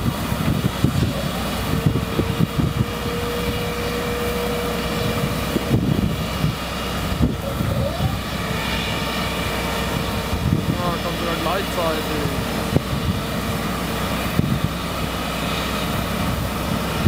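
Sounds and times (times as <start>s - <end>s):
locomotive rumbling: 0.0s - 17.0s
thin steady whine: 0.0s - 17.0s.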